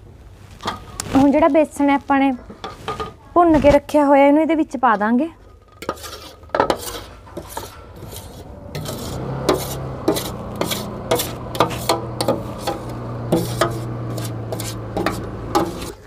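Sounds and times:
metal spoon scraping steel plate: 0:05.4 - 0:16.0
low steady hum: 0:07.0 - 0:16.0.

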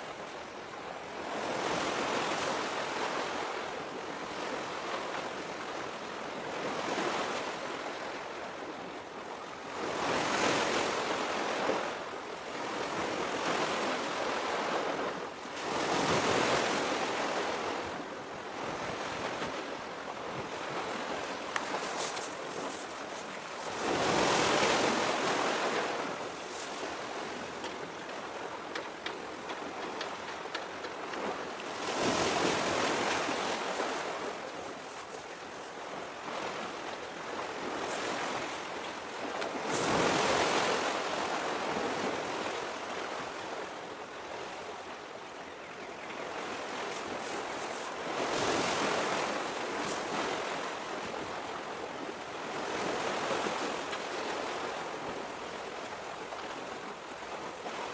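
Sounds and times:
sea waves washing against rocks: 0:20.4 - 0:42.3.

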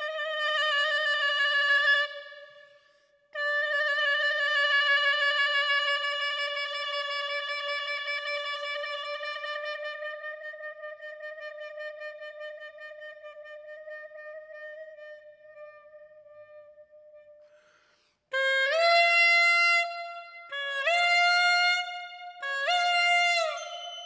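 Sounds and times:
clarinet mouthpiece high note: 0:21.9 - 0:24.0.

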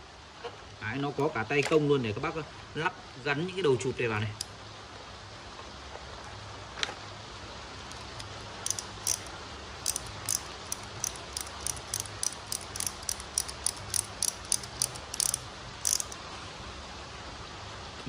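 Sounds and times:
ratchet handle clicking: 0:07.9 - 0:16.2.

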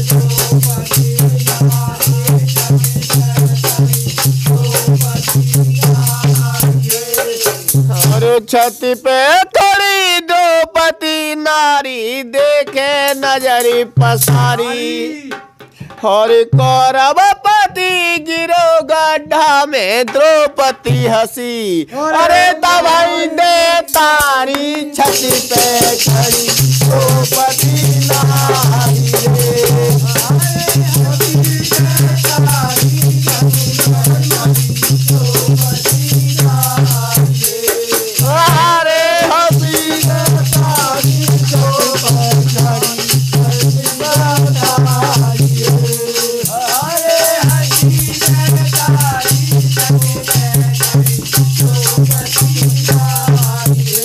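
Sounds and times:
shaking rattle: 0:00.0 - 0:09.2, 0:25.0 - 0:54.0
men singing: 0:00.0 - 0:54.0.

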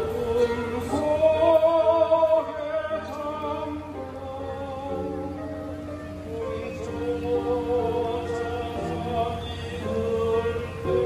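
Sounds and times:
mixed choir singing: 0:06.3 - 0:11.0.

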